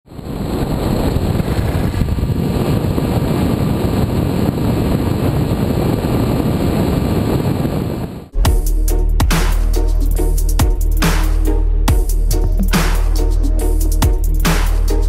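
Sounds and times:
wind rushing over microphone: 0.0 - 8.4.

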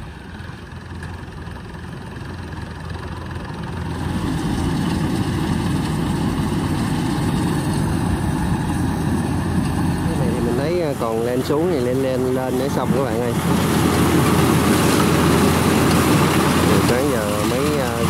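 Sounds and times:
combine harvester diesel engine: 0.0 - 18.0.

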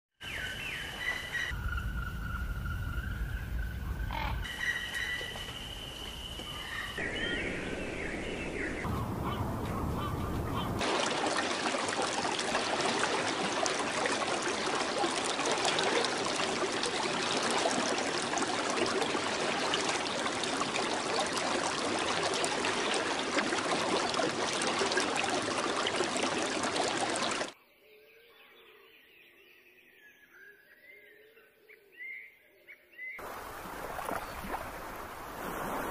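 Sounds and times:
whistled bird calls: 0.2 - 10.8
flock of birds calling: 8.4 - 10.8.

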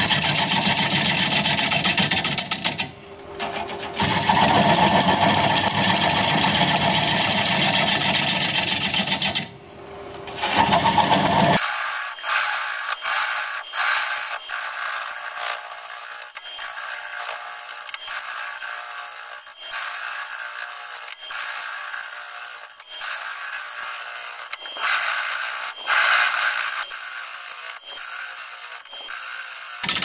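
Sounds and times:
lathe gouge scraping wood: 10.3 - 11.6.

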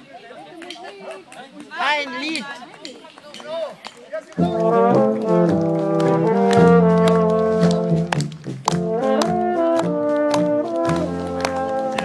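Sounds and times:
brass band playing chords: 4.3 - 12.0.

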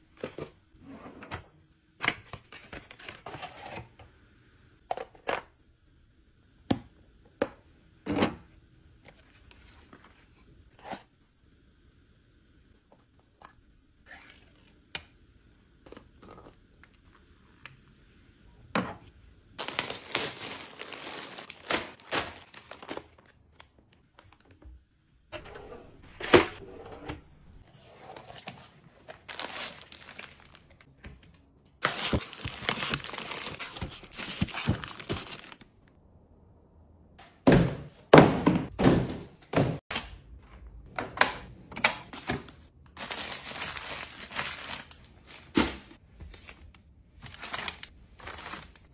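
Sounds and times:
packaging crinkling and tearing: 19.6 - 23.5, 28.2 - 30.9, 31.8 - 35.7, 43.0 - 45.5.

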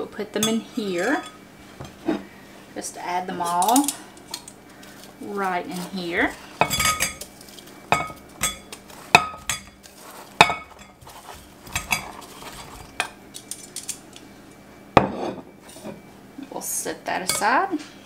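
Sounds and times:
metal tongs clinking on glass: 3.4 - 4.6, 6.6 - 11.0, 13.0 - 14.2.

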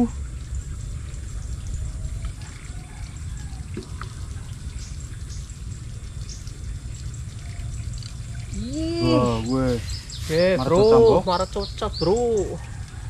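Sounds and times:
steady low rumble: 0.0 - 12.2
water trickling and dripping: 0.0 - 13.0.

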